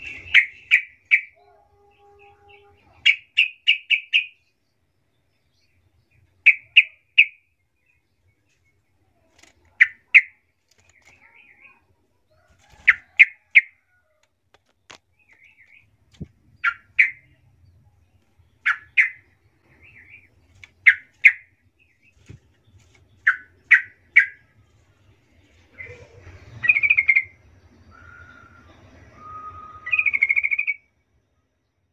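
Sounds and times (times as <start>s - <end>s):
bird chirping sharply: 0.0s - 4.6s, 6.4s - 7.5s, 18.4s - 22.3s, 23.2s - 24.5s, 25.8s - 30.9s
bubbly bird song: 25.7s - 30.8s.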